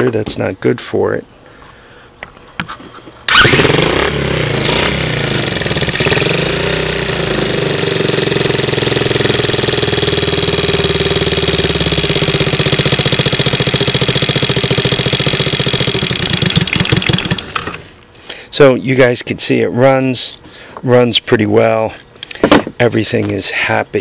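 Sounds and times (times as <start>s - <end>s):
small engine revving and idling: 3.3s - 17.8s.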